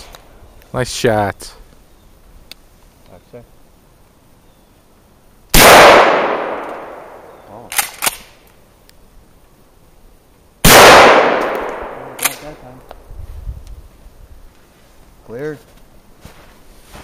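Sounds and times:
shotgun blasts: 0:05.5 - 0:08.3, 0:10.6 - 0:12.6.

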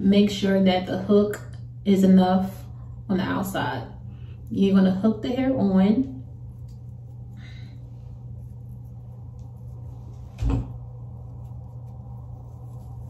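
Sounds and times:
low hum: 0:00.0 - 0:13.0
dull thump: 0:10.3 - 0:10.8.

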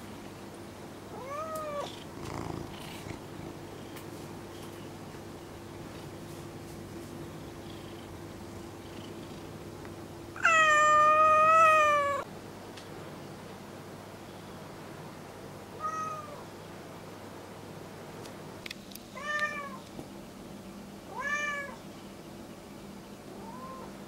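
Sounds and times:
cat meowing: 0:01.1 - 0:01.9, 0:10.4 - 0:12.3, 0:15.8 - 0:16.4, 0:19.2 - 0:19.8, 0:21.1 - 0:21.8, 0:23.4 - 0:23.9.

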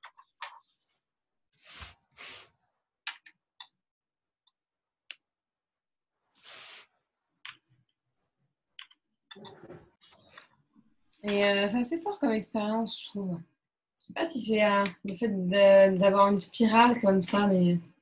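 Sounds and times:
soft rustles: 0:01.6 - 0:02.5.

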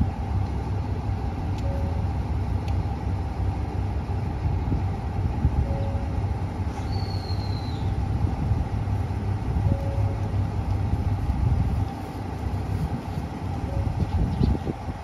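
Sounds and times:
diesel train engines idling: 0:00.0 - 0:15.0
thin high whistle: 0:06.8 - 0:07.9.

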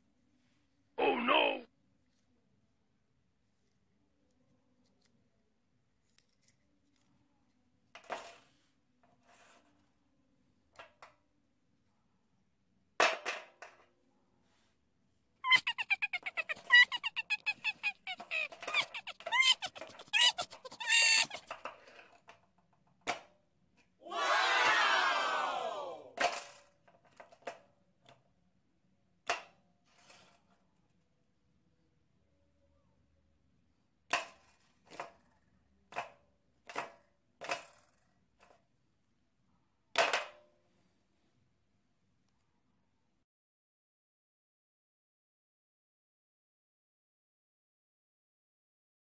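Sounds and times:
high squeaky chirping calls: 0:15.4 - 0:21.4
plastic toys clacking on tray: 0:15.6 - 0:23.3, 0:34.1 - 0:38.6.

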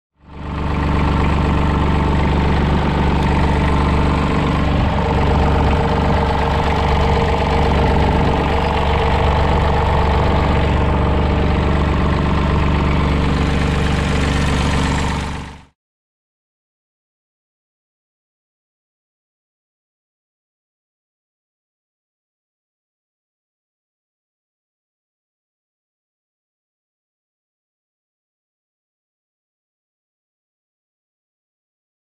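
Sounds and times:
diesel engine idling: 0:00.2 - 0:15.7.

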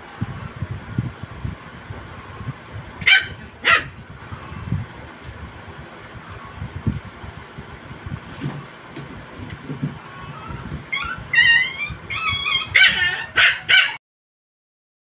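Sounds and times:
puppies scuffling: 0:08.3 - 0:13.2
puppies yipping and whining: 0:09.7 - 0:14.0.

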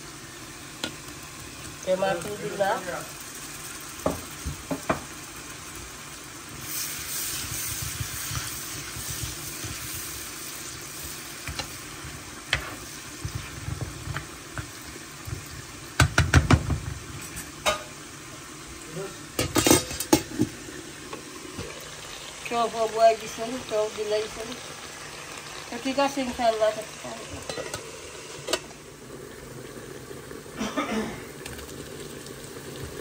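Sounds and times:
food sizzling in a pan: 0:00.0 - 0:33.0
spoon scraping and knocking pan: 0:07.3 - 0:10.2, 0:11.4 - 0:18.0, 0:19.4 - 0:21.8, 0:27.4 - 0:28.7.

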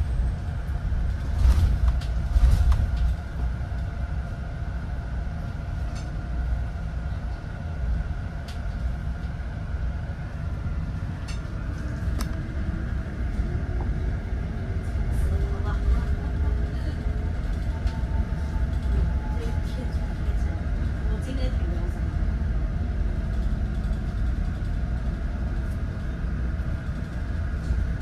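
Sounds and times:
low rumble of bus ride: 0:00.0 - 0:28.0.

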